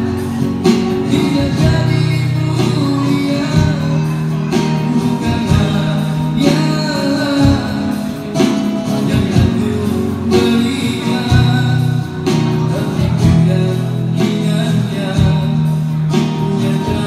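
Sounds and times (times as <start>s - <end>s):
acoustic guitar strumming: 0.0s - 17.0s
man singing through speaker: 0.0s - 17.0s.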